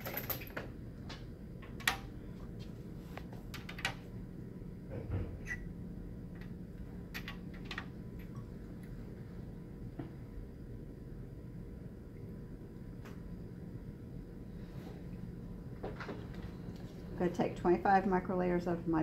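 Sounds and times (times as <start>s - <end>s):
low room hum: 0.0s - 19.0s.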